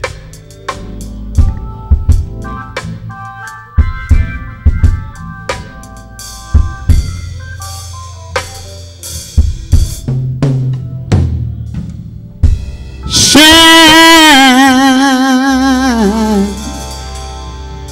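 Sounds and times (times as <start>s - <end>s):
drum kit hits: 0.0s - 3.1s, 3.8s - 13.7s
gospel band playing: 0.0s - 17.9s.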